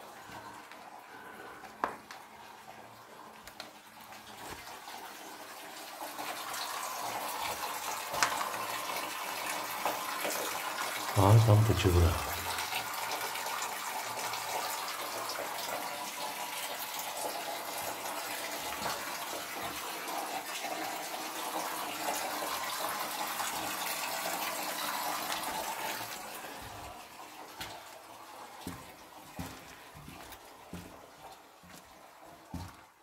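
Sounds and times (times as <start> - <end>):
water running from pipe: 0.0 - 33.0
footsteps on floor: 26.6 - 27.0, 28.6 - 32.9.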